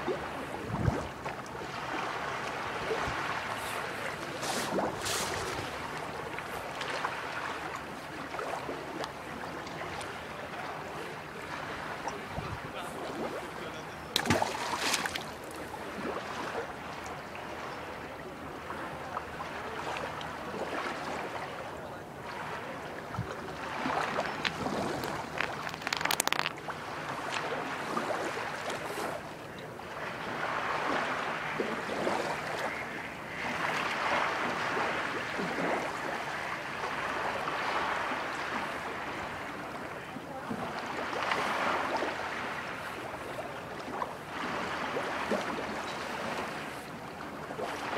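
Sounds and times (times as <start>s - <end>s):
small waves washing on shore: 0.0s - 47.9s
sharp splash in water: 14.2s - 15.3s.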